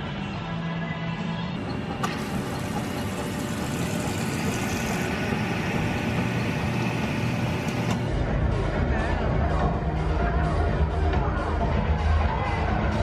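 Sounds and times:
soda hissing pour: 0:02.0 - 0:07.9.

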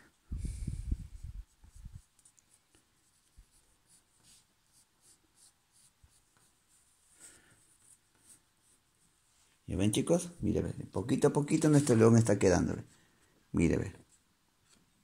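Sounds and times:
pencil scratching on paper: 0:01.5 - 0:09.4.

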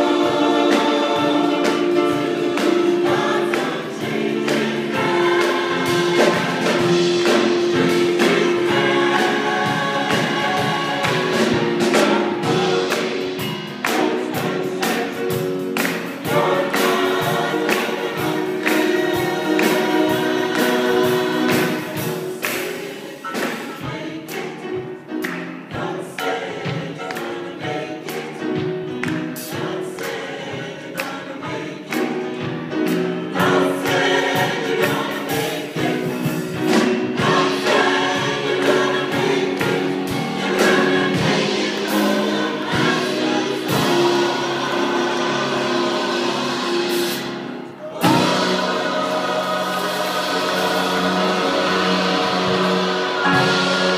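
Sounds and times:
gospel choir singing: 0:00.0 - 0:53.9
steady beat: 0:48.0 - 0:53.9.

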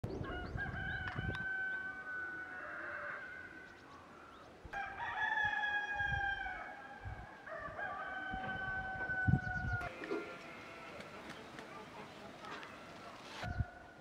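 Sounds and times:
rooster crowing: 0:00.2 - 0:03.7, 0:04.7 - 0:11.0.

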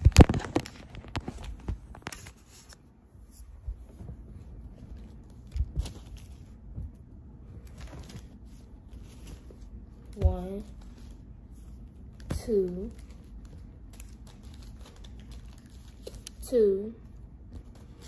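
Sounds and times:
paper money rustling and flicking: 0:07.6 - 0:16.4.

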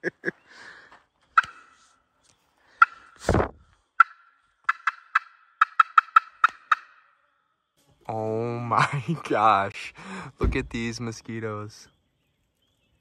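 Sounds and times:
turkey call notes: 0:01.3 - 0:01.9, 0:02.7 - 0:03.3, 0:03.9 - 0:07.3
deep thump: 0:03.2 - 0:03.6, 0:10.4 - 0:11.0.

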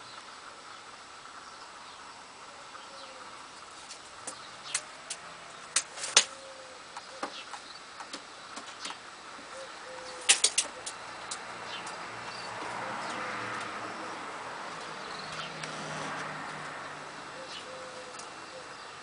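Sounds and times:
pigeons cooing: 0:02.5 - 0:08.2, 0:08.8 - 0:16.4, 0:17.1 - 0:19.0
sharp taps and clicks: 0:10.3 - 0:12.0.

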